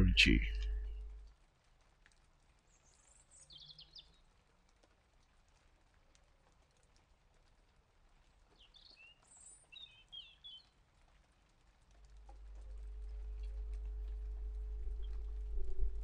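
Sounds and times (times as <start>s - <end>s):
low hum: 0.0s - 1.3s, 12.0s - 16.0s.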